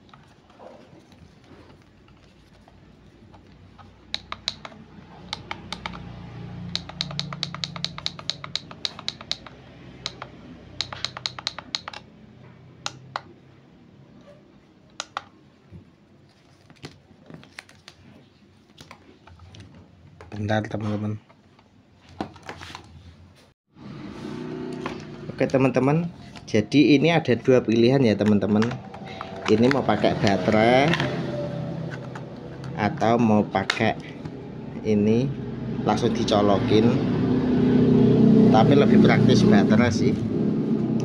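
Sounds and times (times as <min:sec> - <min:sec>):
plastic buttons clicking: 0:03.8 - 0:06.1, 0:06.7 - 0:09.5, 0:10.1 - 0:12.0, 0:14.9 - 0:15.3.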